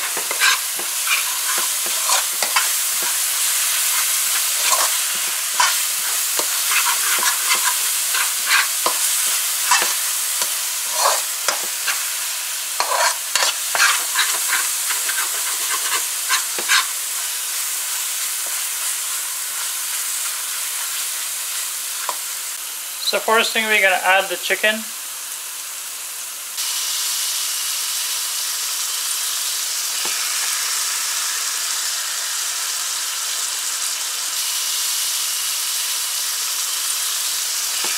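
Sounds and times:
spoon stirring and scraping pan: 0.0 - 22.4
paste sizzling in a pan: 0.0 - 37.9.

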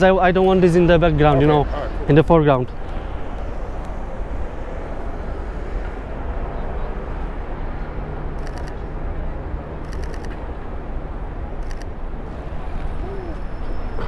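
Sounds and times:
low traffic rumble: 0.0 - 14.0
camera shutter clicks: 8.4 - 8.8, 9.8 - 10.4, 11.6 - 11.9.

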